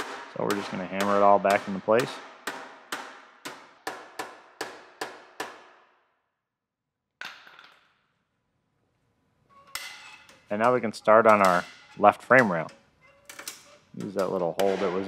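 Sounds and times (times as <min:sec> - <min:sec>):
hammer clanging on steel: 0:00.0 - 0:05.6, 0:09.6 - 0:15.0.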